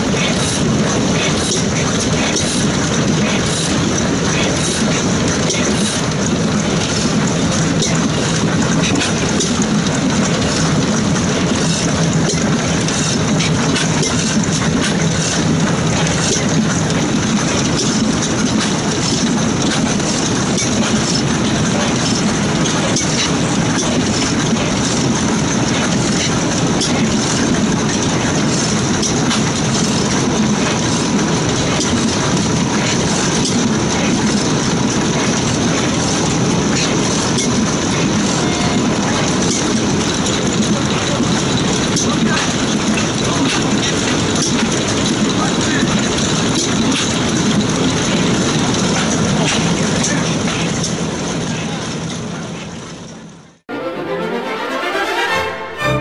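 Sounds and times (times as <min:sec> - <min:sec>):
stationary gas engine clattering: 0:00.0 - 0:53.6.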